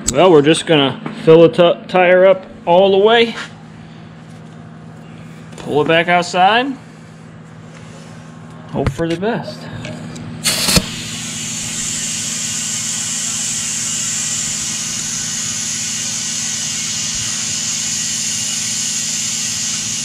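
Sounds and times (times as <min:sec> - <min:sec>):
compressed air hissing into tire: 0:10.4 - 0:20.0.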